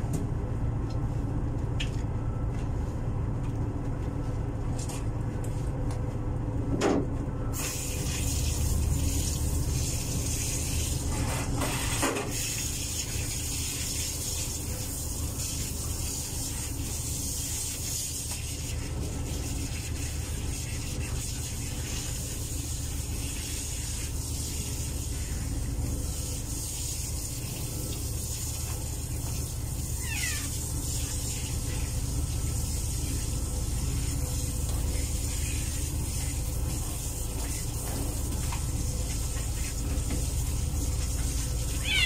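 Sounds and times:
shower spraying water: 0:07.5 - 0:42.0
cat meowing: 0:30.0 - 0:30.6, 0:41.7 - 0:42.0.

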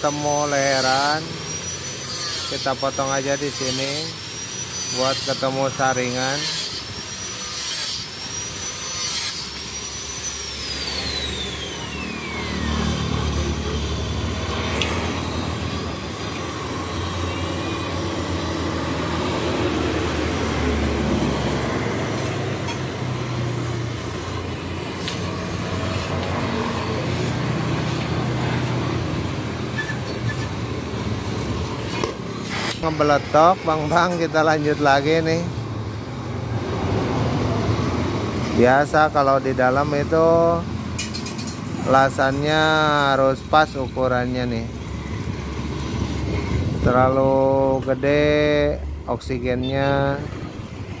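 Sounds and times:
cutting torch hissing: 0:00.0 - 0:48.2
high whine falling in pitch: 0:09.5 - 0:31.6.

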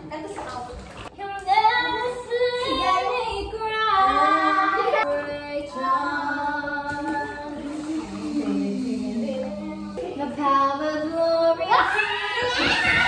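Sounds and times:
high-pitched singing with music: 0:01.1 - 0:13.0.

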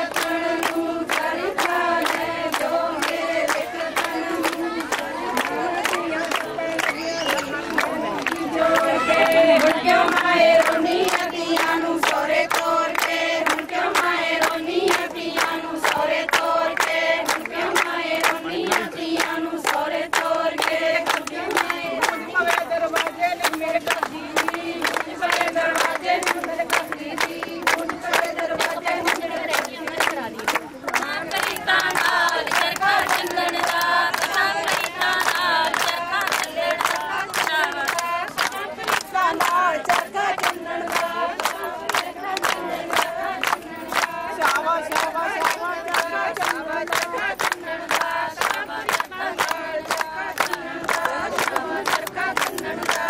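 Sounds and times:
rhythmic hand-clapping: 0:00.0 - 0:53.0
women singing folk song: 0:00.0 - 0:53.0.

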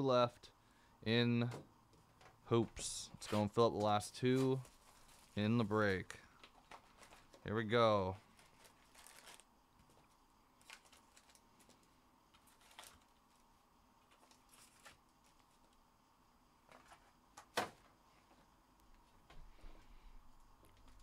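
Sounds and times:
foil packs rustling: 0:03.2 - 0:05.6, 0:06.4 - 0:09.5, 0:10.6 - 0:13.2.

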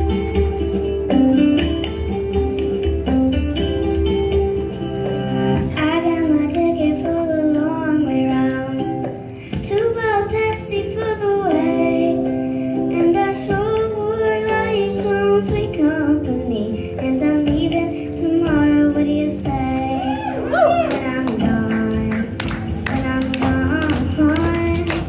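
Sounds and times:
guitar accompaniment: 0:00.0 - 0:25.0
girl singing into microphone: 0:05.5 - 0:25.0.

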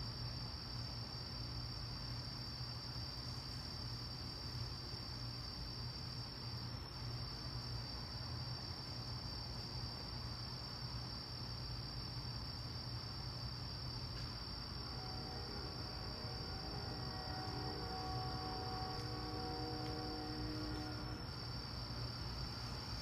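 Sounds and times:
crickets chirping: 0:00.0 - 0:23.0
faint low hum: 0:11.6 - 0:23.0.

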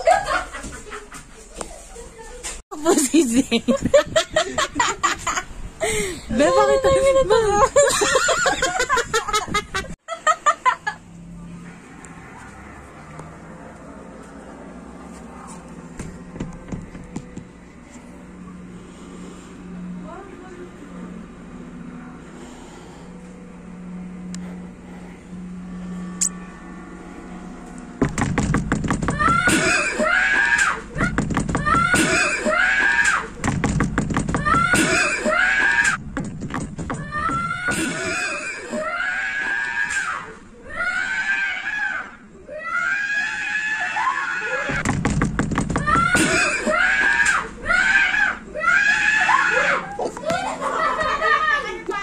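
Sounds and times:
low steady hum: 0:13.4 - 0:32.7
banging and knocking: 0:15.9 - 0:17.6, 0:28.0 - 0:38.4, 0:44.7 - 0:46.8
shrill screams: 0:29.1 - 0:33.4, 0:34.4 - 0:36.0, 0:37.0 - 0:44.8, 0:45.8 - 0:50.0.

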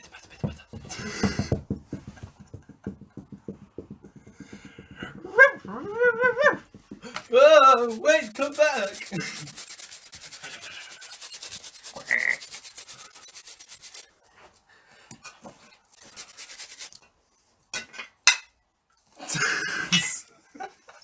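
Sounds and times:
rubbing or scraping strokes: 0:04.5 - 0:14.7, 0:15.4 - 0:17.2.

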